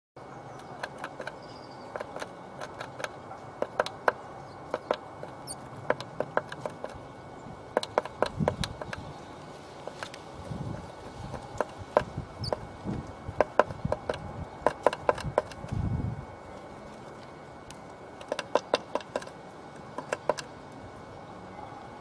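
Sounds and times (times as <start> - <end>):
beak tapping on wood: 0.6 - 7.0, 7.7 - 9.1, 9.8 - 15.8, 18.2 - 20.5.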